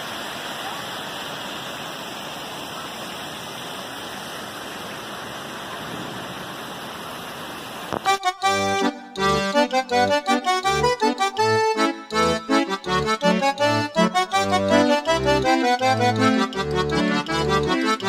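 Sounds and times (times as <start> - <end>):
fountain water splashing: 0.0 - 8.6
accordion music: 8.0 - 18.0.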